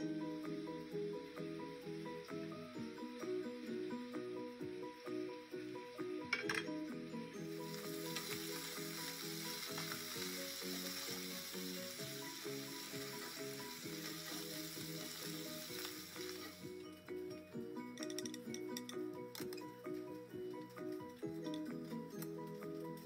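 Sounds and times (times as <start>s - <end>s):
background music: 0.0s - 23.0s
chicken sizzling in oil: 7.2s - 16.9s.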